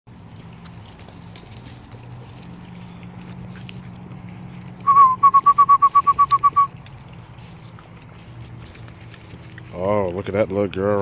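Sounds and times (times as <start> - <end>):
loud whistled call: 4.8 - 6.7.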